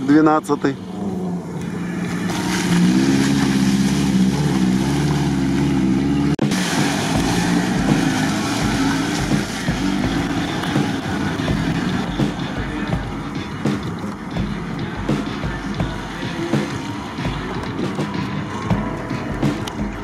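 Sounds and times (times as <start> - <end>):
off-road car engine revving: 0.0 - 20.0.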